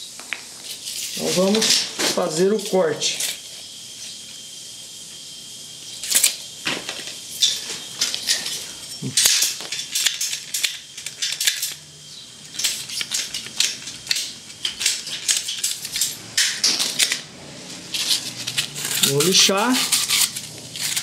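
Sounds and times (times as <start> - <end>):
ratchet pipe cutter clicking: 12.4 - 17.3.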